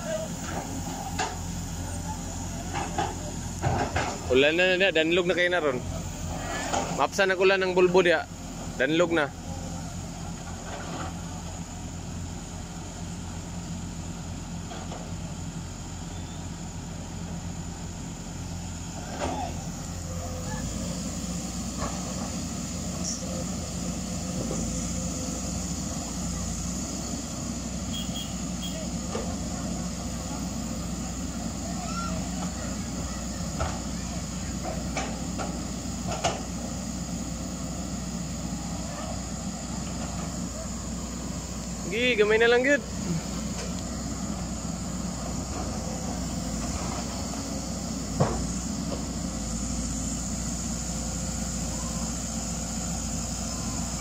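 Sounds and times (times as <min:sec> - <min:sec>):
faint voices: 0:00.0 - 0:04.4, 0:28.4 - 0:35.7, 0:51.4 - 0:54.0
excavator diesel engine droning: 0:00.0 - 0:54.0.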